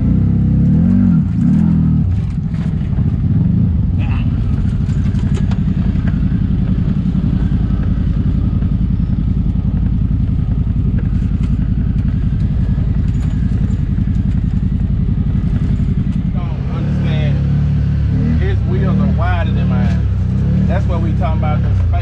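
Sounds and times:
off-road vehicle engine running: 0.0 - 22.0
light rattling clatter: 1.3 - 3.4, 4.2 - 16.4.

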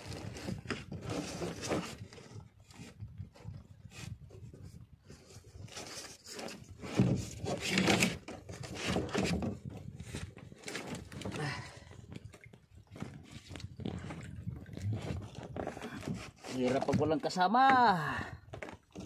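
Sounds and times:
knocks and thumps on wooden boat: 6.4 - 19.0.

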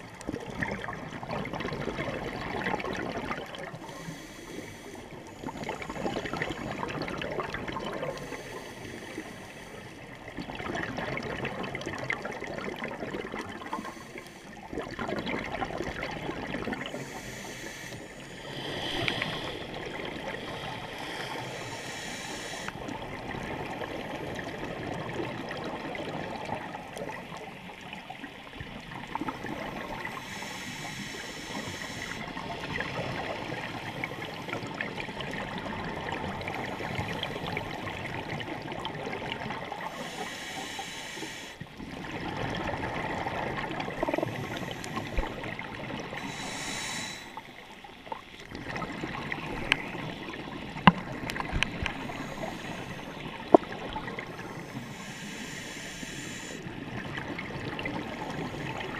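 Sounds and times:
exhaled bubbles burbling: 0.0 - 3.9, 5.1 - 8.2, 10.2 - 13.9, 14.6 - 17.0, 22.8 - 28.0, 32.3 - 40.0, 41.7 - 46.2, 47.9 - 54.6, 56.7 - 58.9
muffled underwater wash: 0.0 - 58.9.

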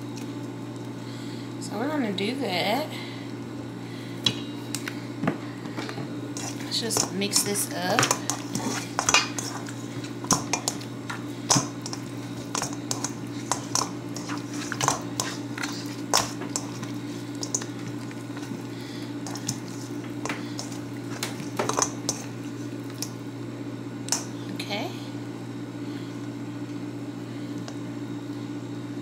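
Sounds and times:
steady low hum: 0.0 - 29.0
wet squishing of meat: 8.0 - 23.2.

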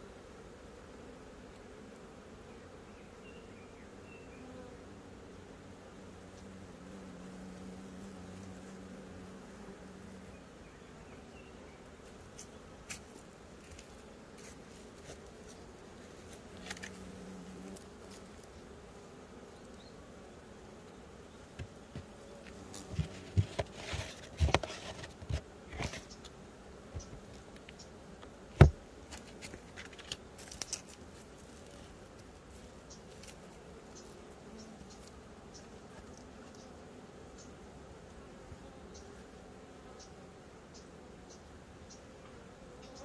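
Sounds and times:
honeybees buzzing: 0.0 - 43.0
sharp taps and thumps: 22.9 - 26.2, 28.6 - 30.0.

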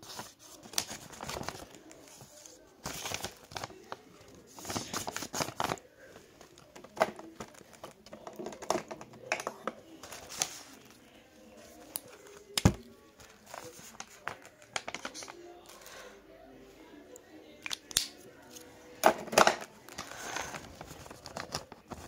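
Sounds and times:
paper crinkling: 0.0 - 8.8, 9.8 - 16.0, 19.8 - 22.0.

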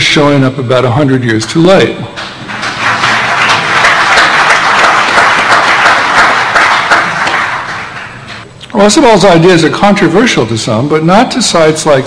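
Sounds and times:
audience applauding: 2.2 - 8.4.

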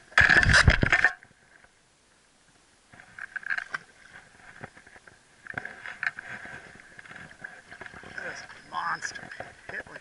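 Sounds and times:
scraping and rustling in plastic kayak: 2.9 - 10.0.

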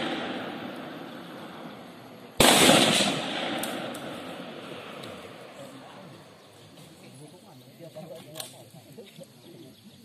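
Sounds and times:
rifle shot with echo: 0.0 - 5.6.

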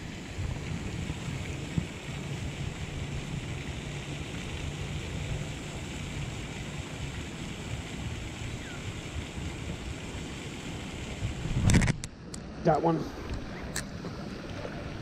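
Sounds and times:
wind buffeting microphone: 0.0 - 12.1.

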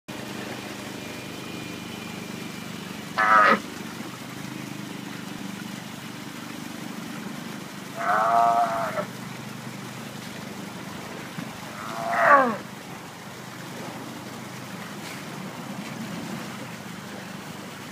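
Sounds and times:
sea lion calling: 3.0 - 3.7, 7.9 - 9.2, 11.4 - 12.7.

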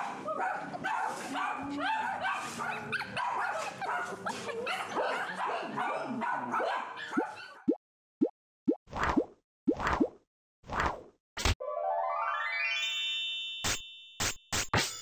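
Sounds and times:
small dogs barking and yipping: 0.0 - 7.7.

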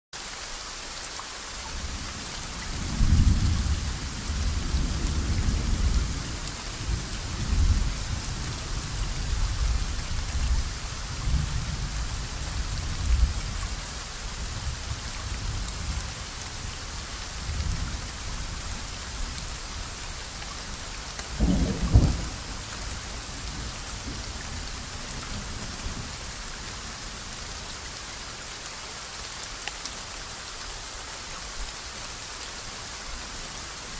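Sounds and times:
soft rain falling: 0.2 - 33.9
thunderclap: 21.4 - 22.4
rolling thunder: 21.4 - 22.8.

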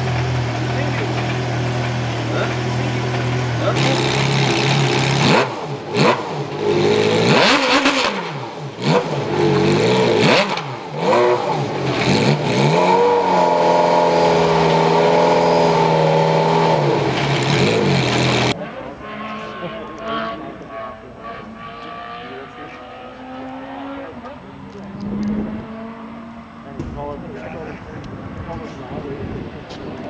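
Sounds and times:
car engine revving: 0.0 - 29.8.

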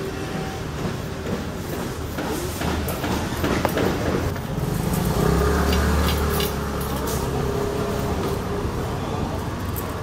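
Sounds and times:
low rumble of motor traffic: 2.9 - 10.0.

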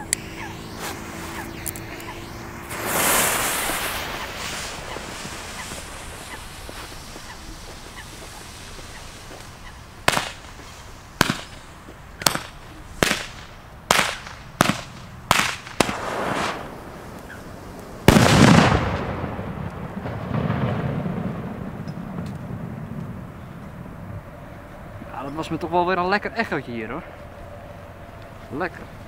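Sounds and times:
fuse fizzing: 0.0 - 12.5
firecracker bangs: 0.0 - 23.3
loud echoing firecracker bang: 10.0 - 11.6, 12.2 - 23.2.

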